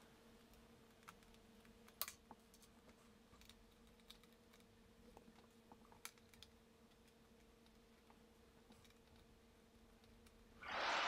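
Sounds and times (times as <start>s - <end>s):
faint steady hum: 0.0s - 11.0s
small clicks and taps on metal: 3.4s - 9.3s.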